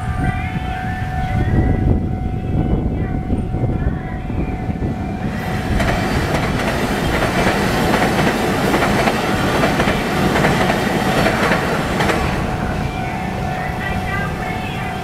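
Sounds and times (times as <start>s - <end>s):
crossing warning signal tone: 0.0s - 15.0s
train wheels clacking on rails: 4.8s - 15.0s.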